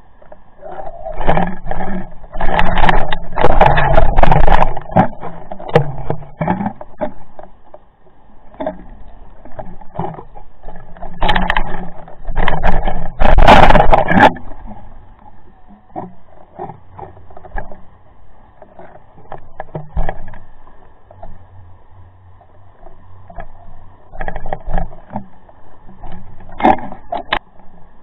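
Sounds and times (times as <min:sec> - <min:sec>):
faint steady hum: 0:00.0 - 0:28.0
water rushing against camera housing: 0:00.0 - 0:28.0
scrapes and knocks: 0:00.2 - 0:07.9, 0:08.5 - 0:21.4, 0:22.7 - 0:27.8.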